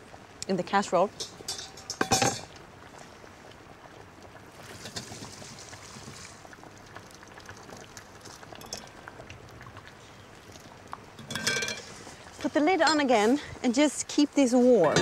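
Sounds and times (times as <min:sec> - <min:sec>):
broth pouring through strainer: 0:04.6 - 0:09.0.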